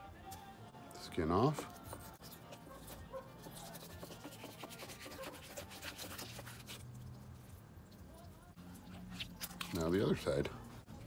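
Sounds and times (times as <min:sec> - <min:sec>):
knife scraping on cutting board: 0:01.6 - 0:06.8.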